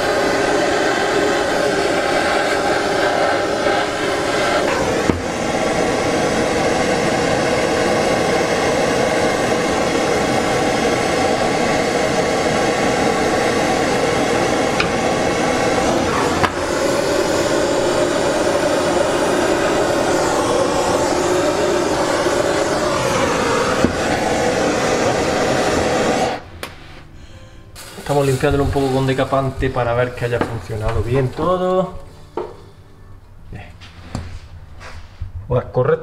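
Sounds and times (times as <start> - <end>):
blowtorch flame hissing: 0.0 - 27.1, 27.8 - 31.7.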